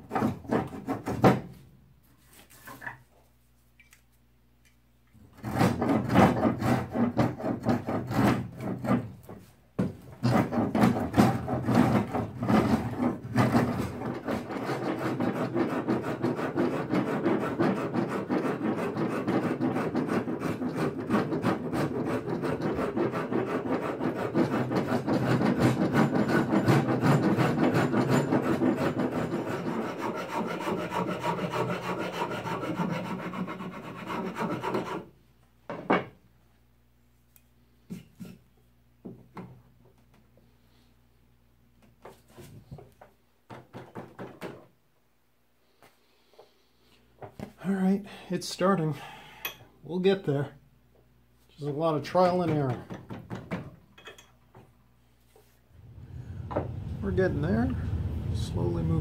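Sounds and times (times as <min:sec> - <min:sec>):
rasp shaping wood: 0:00.0 - 0:01.6, 0:05.3 - 0:35.1.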